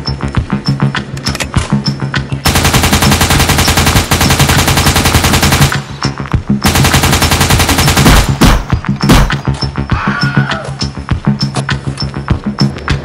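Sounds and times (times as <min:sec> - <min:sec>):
background music: 0:00.0 - 0:13.0
machine-gun bursts: 0:02.5 - 0:05.9, 0:06.7 - 0:08.4.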